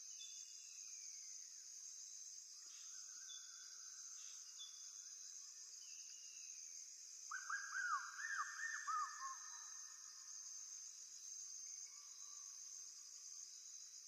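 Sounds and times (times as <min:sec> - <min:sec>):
high insect hum: 0:00.0 - 0:14.0.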